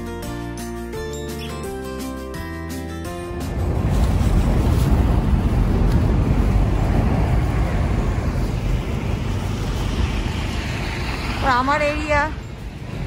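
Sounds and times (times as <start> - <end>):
wind buffeting microphone: 3.2 - 13.0.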